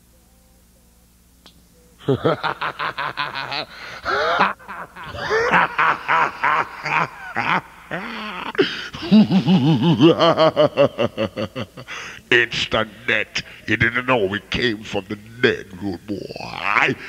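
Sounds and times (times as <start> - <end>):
man laughing loudly: 2.0 - 13.5, 16.5 - 17.0.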